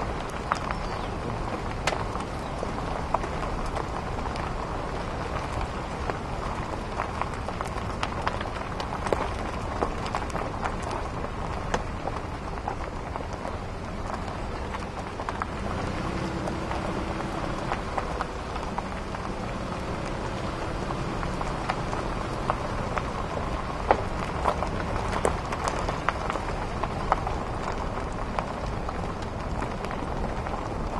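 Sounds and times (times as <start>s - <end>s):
tyres crackling on rutted ground: 0.0s - 30.9s
vehicle driving on dirt track: 0.0s - 30.9s.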